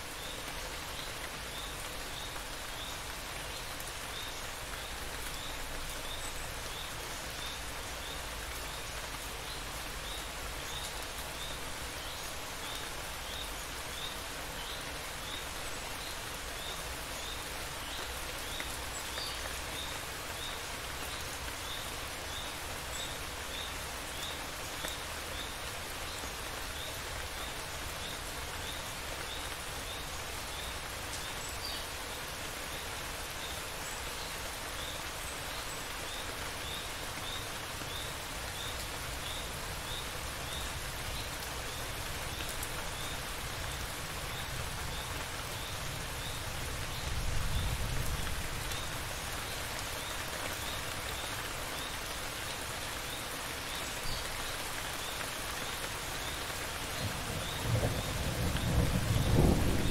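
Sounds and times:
steady rain: 0:00.0 - 0:59.9
distant thunder rumble: 0:57.1 - 0:59.9.

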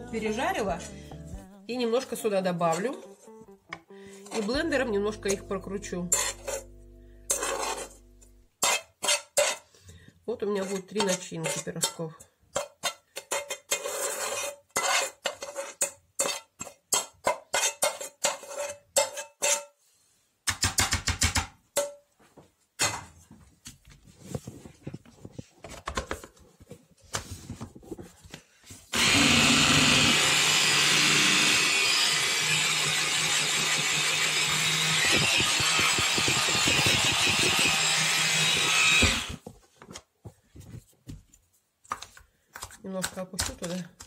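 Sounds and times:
metal spoon scraping a pan: 0:04.2 - 0:06.7, 0:07.3 - 0:19.9
electric chopper running: 0:34.6 - 0:39.4.

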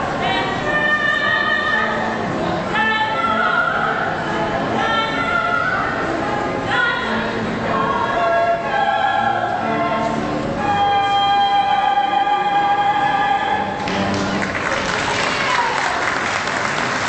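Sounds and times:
cello: 0:00.0 - 0:14.6
women singing operatically: 0:00.2 - 0:02.0, 0:02.7 - 0:13.8
audience applause: 0:13.8 - 0:17.0.

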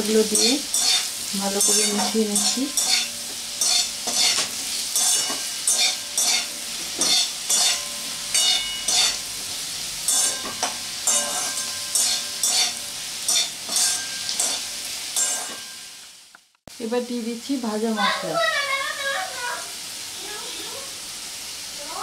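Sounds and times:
metal spatula scraping a pan: 0:00.0 - 0:16.0
potatoes sizzling in oil: 0:00.0 - 0:22.0.

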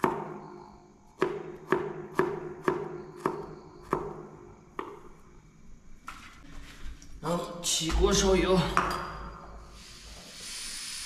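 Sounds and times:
knife chopping garlic: 0:01.2 - 0:05.0.

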